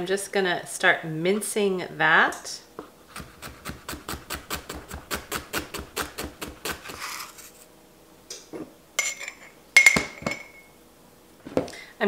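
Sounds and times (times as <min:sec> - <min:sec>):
glass clinking: 0:09.0 - 0:10.8.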